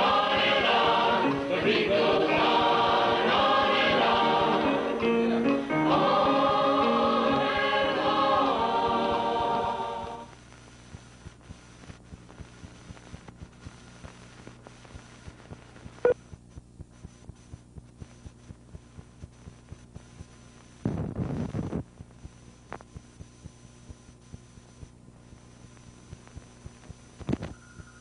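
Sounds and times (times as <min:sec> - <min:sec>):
steady low hum: 0:00.0 - 0:28.0
light regular ticking: 0:10.4 - 0:20.4.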